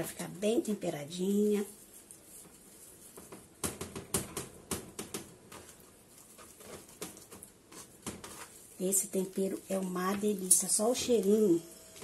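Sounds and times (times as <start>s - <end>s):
hands patting seasoning into meat: 1.4s - 10.5s.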